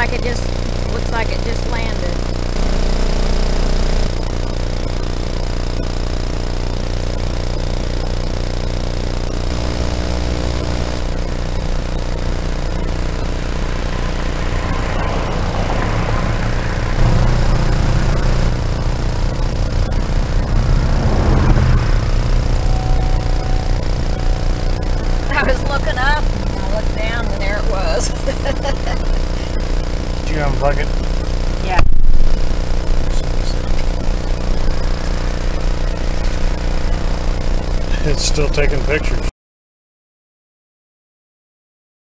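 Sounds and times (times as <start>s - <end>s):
vehicles passing: 13.4s - 30.4s.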